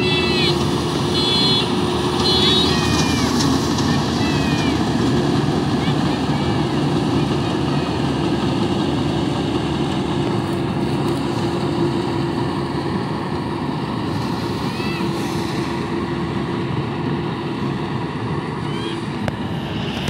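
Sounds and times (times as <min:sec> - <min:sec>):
combine harvester humming: 0:00.0 - 0:20.0.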